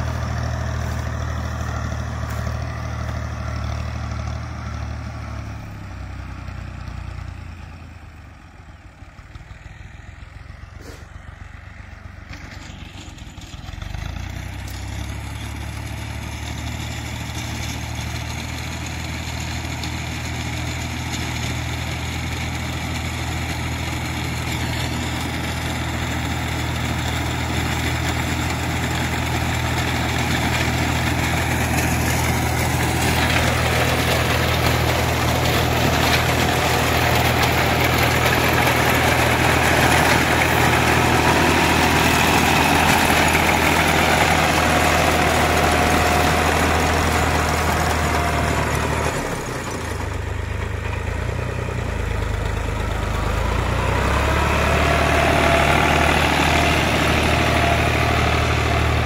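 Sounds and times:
tractor diesel engine running: 0.0s - 59.0s
reaper binder cutting wheat: 10.8s - 11.1s, 24.1s - 50.0s.

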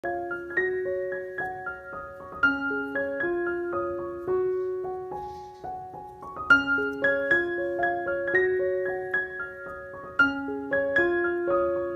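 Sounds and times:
gentle piano melody: 0.0s - 11.9s.

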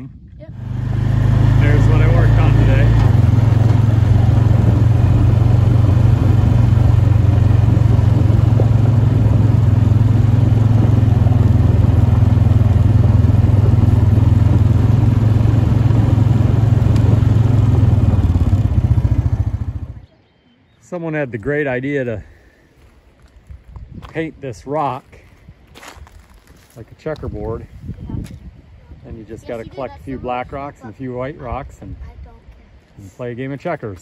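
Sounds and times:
engine droning steadily: 0.0s - 20.3s.

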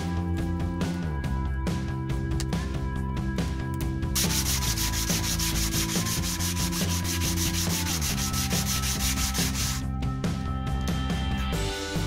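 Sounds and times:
sandpaper rubbing on plywood: 4.2s - 9.8s.

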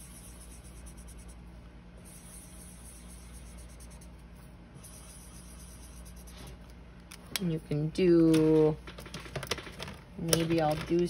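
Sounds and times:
marker scribbling on paper: 0.0s - 1.4s, 2.0s - 4.2s, 4.8s - 6.6s.

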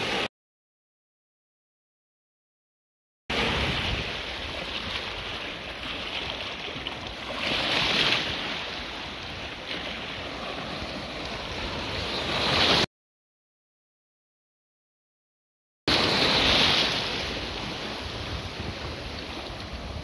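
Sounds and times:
sea waves breaking in shallow surf: 0.0s - 0.3s, 3.3s - 12.9s, 15.9s - 20.0s.

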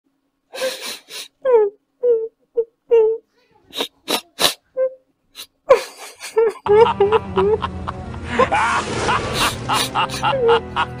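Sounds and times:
person gasping and whimpering: 0.5s - 4.7s
music: 6.7s - 11.0s.

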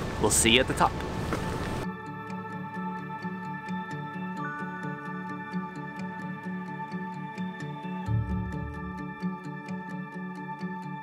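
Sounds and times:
light ticking beat: 8.1s - 9.2s
low stepping bass line: 8.1s - 9.2s
sustained held notes: 8.1s - 9.5s.

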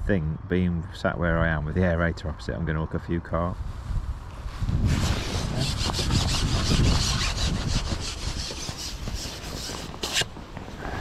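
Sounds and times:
wind rumble on microphone: 3.1s - 11.0s
fishing pole rubbing and scraping: 4.8s - 10.4s.

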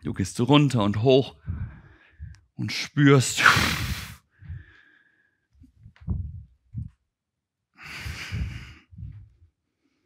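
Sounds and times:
man's forceful breath out: 1.4s - 2.3s, 3.4s - 5.5s, 7.8s - 9.4s
soft breathing and body movement: 3.8s - 7.1s, 7.9s - 10.0s.

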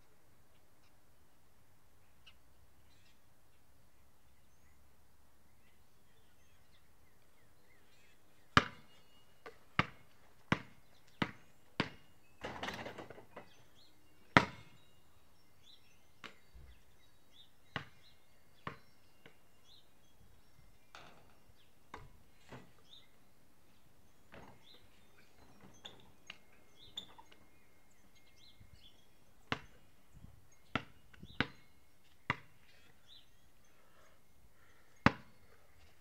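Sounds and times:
basketball bouncing on concrete: 8.6s - 12.9s, 14.4s - 14.7s, 17.8s - 18.0s, 18.6s - 19.4s, 29.5s - 29.8s, 30.7s - 31.6s, 32.3s - 32.5s, 35.0s - 35.3s.

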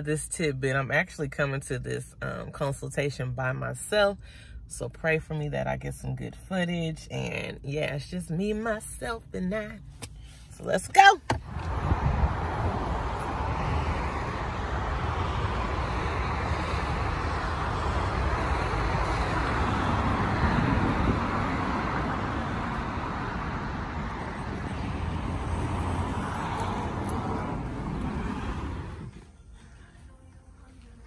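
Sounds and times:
road traffic rushing past: 11.3s - 30.8s.

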